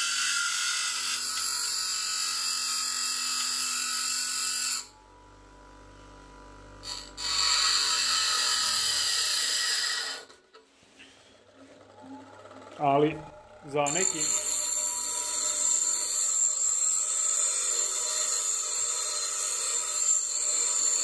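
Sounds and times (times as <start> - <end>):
grinder motor hum: 3.4 - 10.4, 11.1 - 21.0
metal grinding on bench grinder: 6.8 - 21.0.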